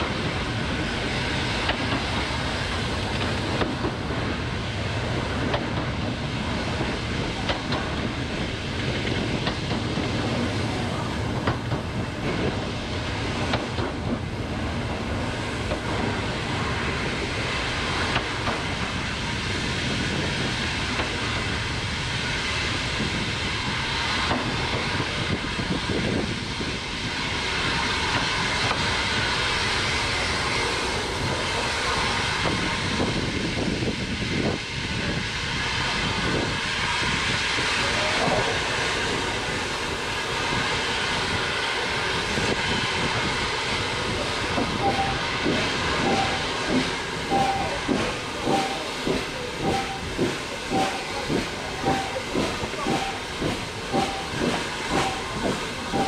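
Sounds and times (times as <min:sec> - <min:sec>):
steam hissing: 0:00.0 - 0:56.0
wheels rumbling on track: 0:00.0 - 0:56.0.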